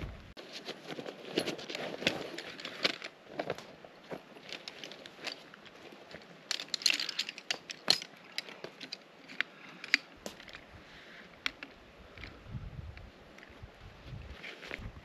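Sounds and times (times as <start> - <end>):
rustling: 0.0 - 12.5, 13.3 - 15.0
chair poles clicking into joints: 6.5 - 10.5.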